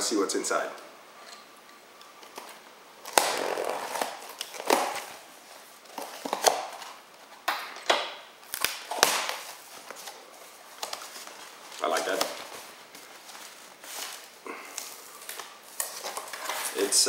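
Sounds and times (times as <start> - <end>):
packing tape ripping: 2.2 - 7.1, 8.4 - 10.2.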